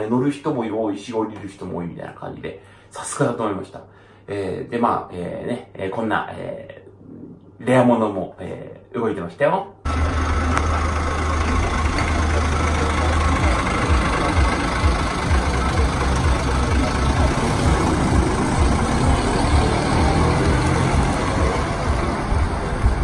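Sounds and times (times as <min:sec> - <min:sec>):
bus engine rumble: 0:09.9 - 0:23.0.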